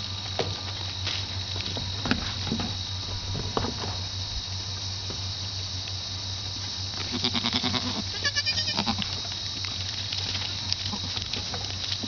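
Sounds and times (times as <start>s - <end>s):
goats bleating: 7.0s - 9.2s, 10.8s - 11.4s.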